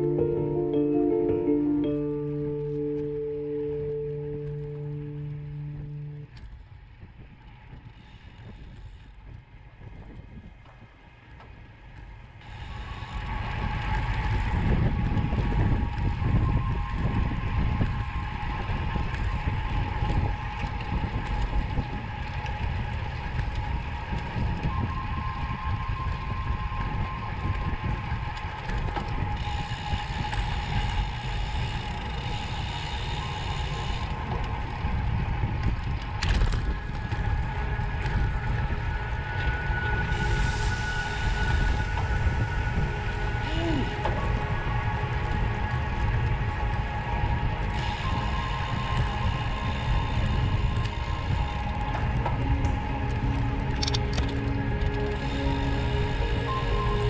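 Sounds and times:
wind noise: 0:02.3 - 0:57.0
bike rattling and ticking: 0:25.7 - 0:39.1.

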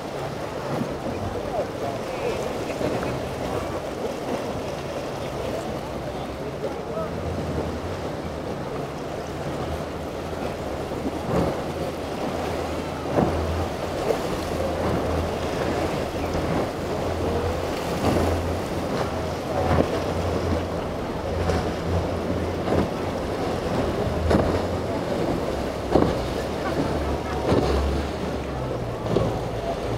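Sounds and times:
hull slapping into waves: 0:00.0 - 0:29.9
outboard engine drone: 0:00.0 - 0:29.9
rushing water: 0:00.0 - 0:29.9
wind buffeting microphone: 0:07.0 - 0:29.9.

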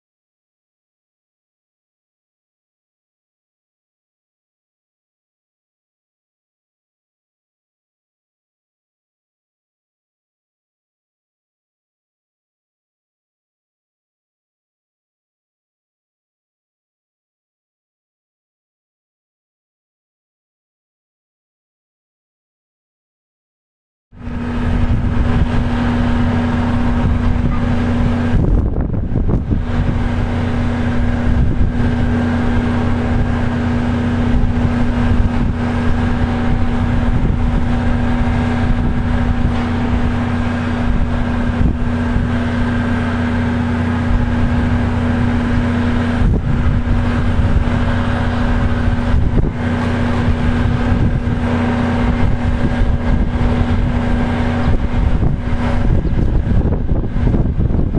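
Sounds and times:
truck engine idling: 0:24.2 - 0:57.8.

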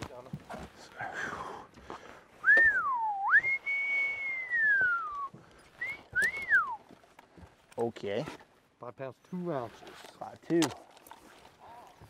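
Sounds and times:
person whistling: 0:02.4 - 0:06.8.

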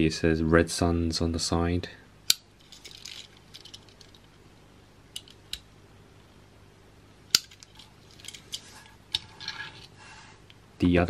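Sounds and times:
handling toy car: 0:02.6 - 0:04.4, 0:07.3 - 0:10.0.

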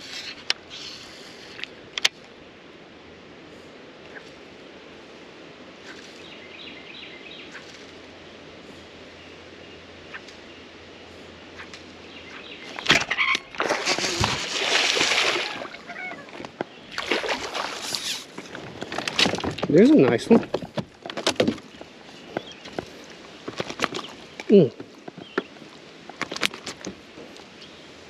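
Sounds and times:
river ambience: 0:00.0 - 0:28.0
fish splashing and thrashing: 0:12.7 - 0:27.0.

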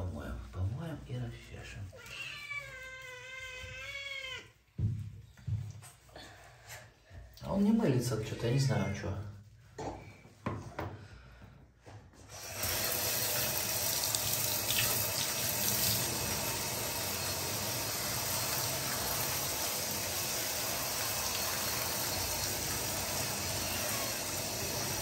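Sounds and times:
shower water spraying: 0:12.3 - 0:25.0.

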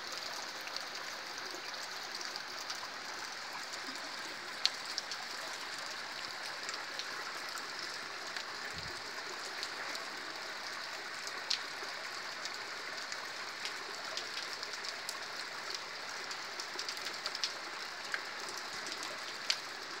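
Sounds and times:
creek running over rock: 0:00.0 - 0:20.0
steady rain hiss: 0:00.0 - 0:20.0.

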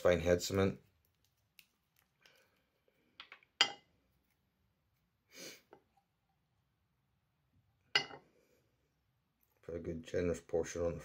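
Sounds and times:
short sniff: 0:05.3 - 0:05.8.

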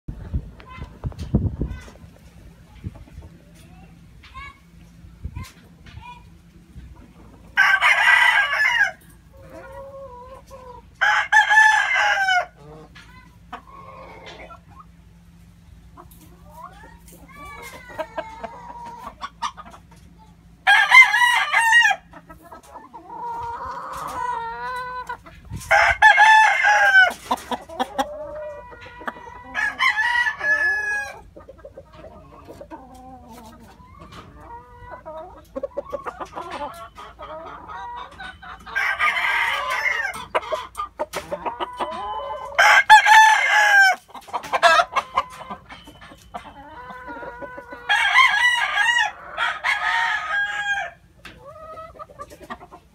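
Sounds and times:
chickens clucking: 0:00.1 - 0:52.9
roosters crowing: 0:07.5 - 0:13.0, 0:20.6 - 0:31.4, 0:33.8 - 0:52.0.

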